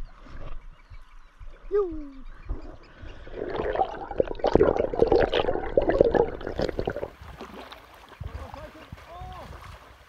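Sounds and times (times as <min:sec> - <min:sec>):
seawater sloshing and splashing: 0:03.1 - 0:10.0.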